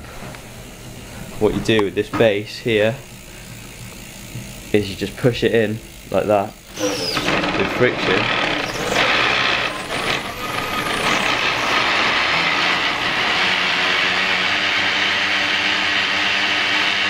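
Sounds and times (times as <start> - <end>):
blender whirring: 6.0 - 17.0.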